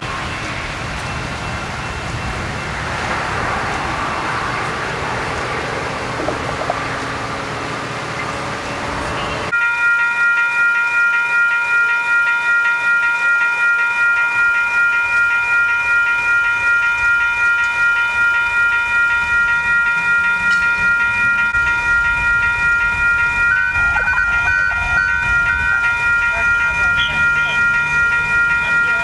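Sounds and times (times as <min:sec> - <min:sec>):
train horn chord: 0:24.2 - 0:29.0.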